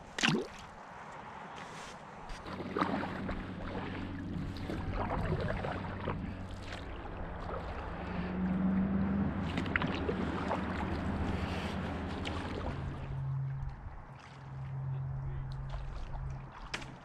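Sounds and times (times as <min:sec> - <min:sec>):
water lapping along hull: 0:00.0 - 0:17.0
steady low hum: 0:02.3 - 0:16.6
fish splashing into water: 0:02.4 - 0:13.2.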